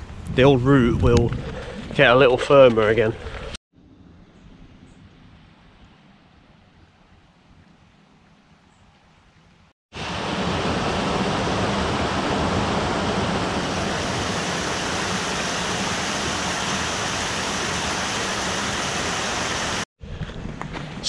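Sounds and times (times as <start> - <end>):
water rushing down waterfall: 10.0 - 19.9.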